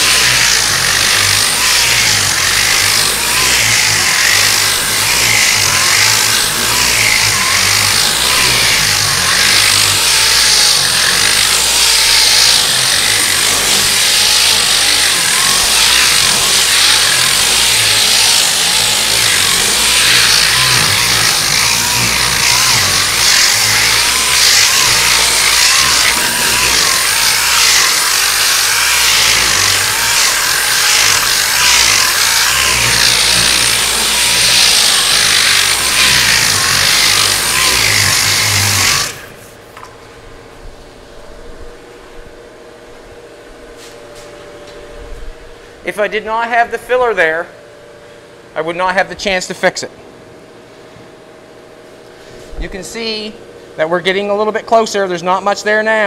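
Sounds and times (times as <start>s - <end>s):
sanding scraping: 0.0s - 39.4s.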